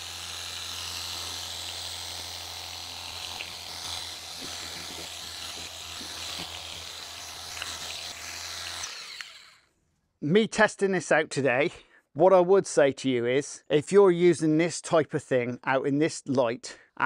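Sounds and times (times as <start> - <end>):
pump motor humming: 0.0 - 9.6.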